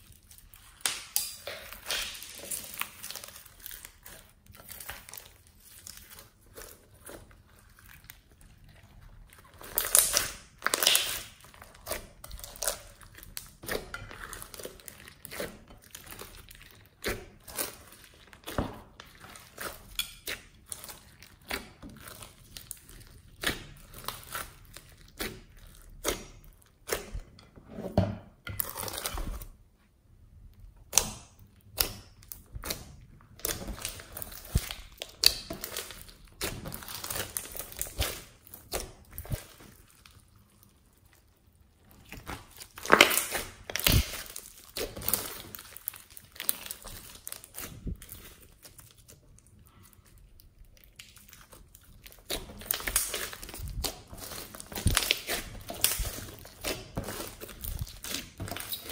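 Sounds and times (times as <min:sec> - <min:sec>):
slime squelching and popping: 0:00.0 - 0:27.4, 0:30.5 - 0:58.9.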